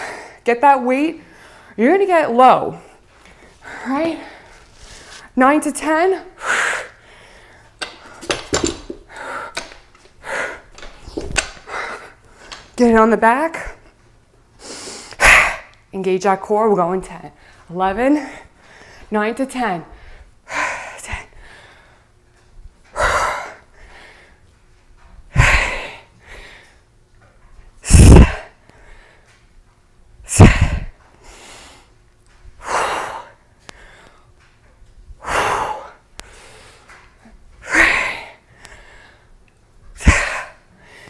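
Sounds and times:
woman's forceful exhalations: 27.9s - 28.5s, 30.3s - 30.9s
quiet breaths: 32.6s - 34.4s, 35.2s - 39.4s.

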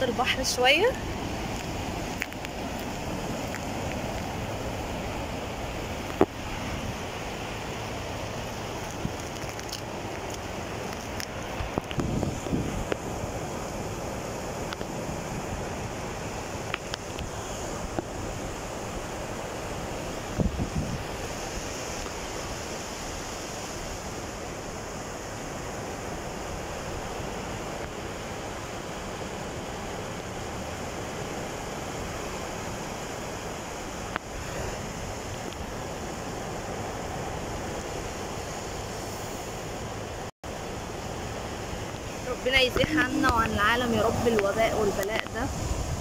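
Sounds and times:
surf breaking on sandy beach: 0.0s - 46.0s
wind on microphone: 0.0s - 46.0s.

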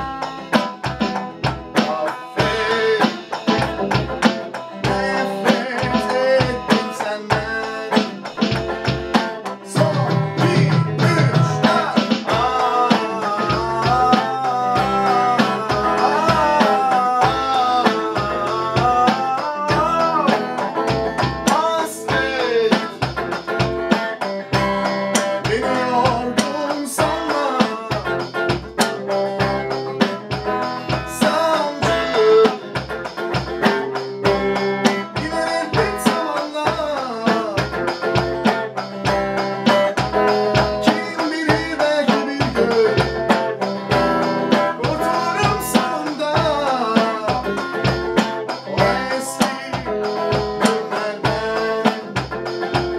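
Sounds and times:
electric guitar melody with pitch bends: 0.0s - 52.9s
electronic drum kick beat: 0.0s - 52.9s.

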